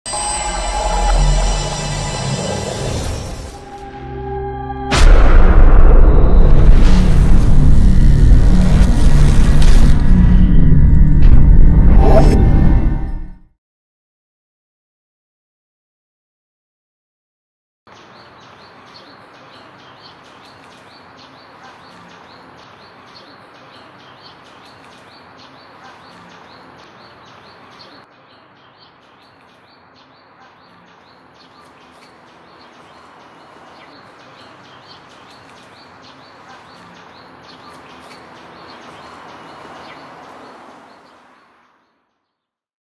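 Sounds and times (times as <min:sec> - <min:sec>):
small birds chirping: 0:17.9 - 0:42.5.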